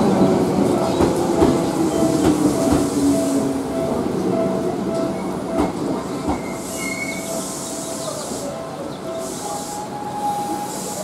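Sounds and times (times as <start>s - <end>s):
train wheels and brakes squealing: 6.2s - 11.0s
high hissing: 9.2s - 11.0s.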